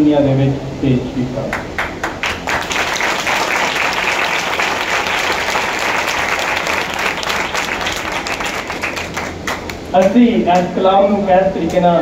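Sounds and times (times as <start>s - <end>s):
crowd applauding: 1.6s - 10.2s.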